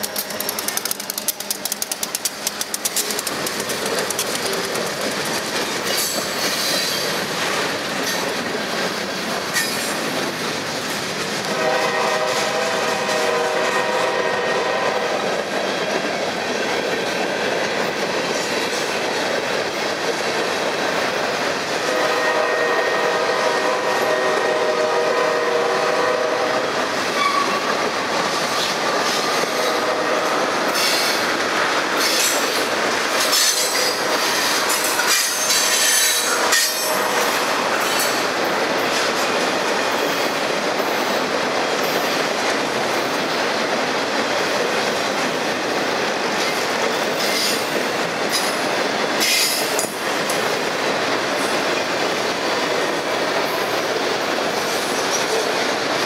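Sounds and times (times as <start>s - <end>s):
train wheels clattering over rail joints: 0.0s - 24.2s, 26.3s - 56.0s
locomotive horn long blast: 11.5s - 15.2s, 21.9s - 27.5s, 29.6s - 30.5s, 36.2s - 37.5s.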